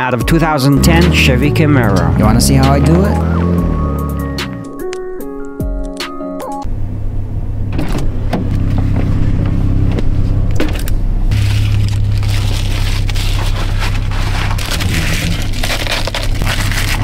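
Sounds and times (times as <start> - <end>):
low hum inside car: 6.6 - 17.0
crinkling foil window cover: 11.3 - 17.0.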